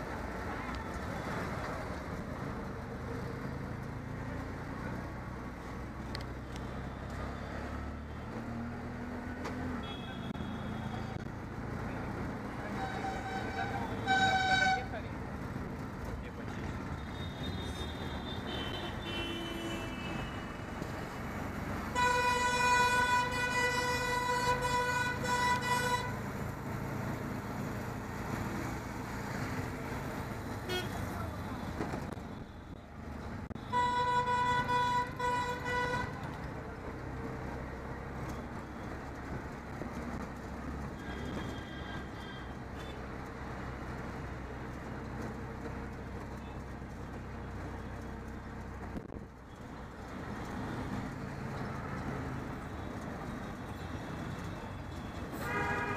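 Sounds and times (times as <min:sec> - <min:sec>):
engine and road noise: 0:00.0 - 0:55.9
vehicle horn blaring: 0:09.8 - 0:11.1, 0:12.7 - 0:14.9, 0:17.1 - 0:20.5, 0:21.9 - 0:26.2, 0:30.7 - 0:31.0, 0:33.6 - 0:36.2, 0:41.0 - 0:42.9, 0:55.3 - 0:55.9
higher horns beeping: 0:09.8 - 0:11.3, 0:12.7 - 0:15.0, 0:16.9 - 0:20.8, 0:21.8 - 0:26.5, 0:30.6 - 0:31.1, 0:33.5 - 0:36.3, 0:40.8 - 0:43.0, 0:52.6 - 0:55.9.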